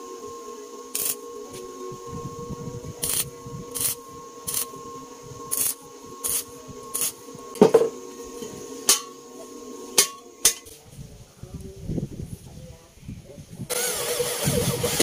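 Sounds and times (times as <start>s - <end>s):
faint steady hum: 0.0s - 13.7s
welding crackling bursts: 0.9s - 1.7s, 3.0s - 4.7s, 5.5s - 7.2s
metal clank: 7.6s - 9.2s, 10.0s - 10.7s.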